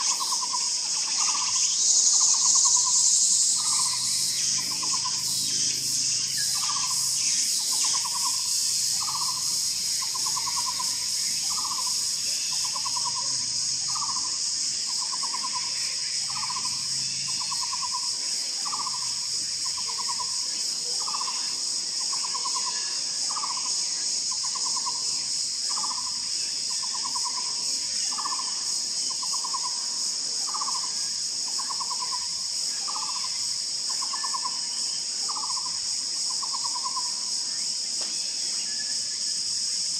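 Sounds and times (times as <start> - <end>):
high insect buzz: 0.0 - 39.9
barbet calling: 2.2 - 5.8, 6.4 - 14.4.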